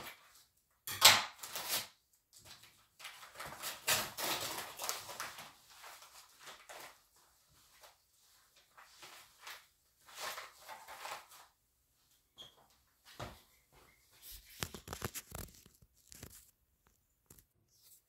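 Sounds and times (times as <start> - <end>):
paper crinkling and rustling: 1.3 - 11.6, 14.2 - 18.0.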